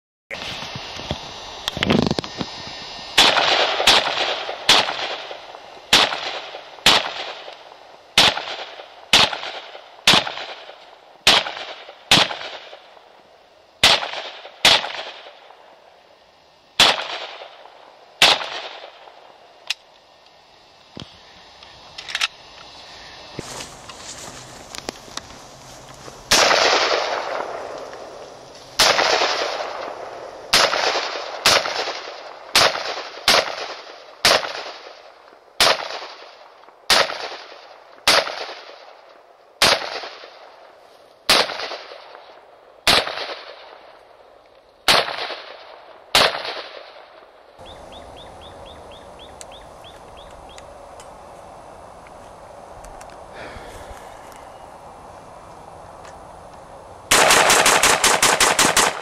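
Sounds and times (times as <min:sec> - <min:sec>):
rifle gunshots echoing: 0:03.2 - 0:07.5, 0:08.2 - 0:12.9, 0:13.8 - 0:15.5, 0:16.8 - 0:19.2, 0:26.3 - 0:27.8, 0:28.8 - 0:34.8, 0:42.8 - 0:43.8, 0:57.1 - 0:59.0.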